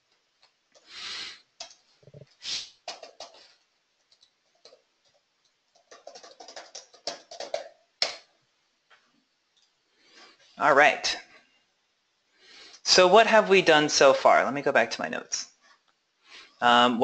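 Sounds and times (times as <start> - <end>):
keyboard typing: 1.6 - 8.3.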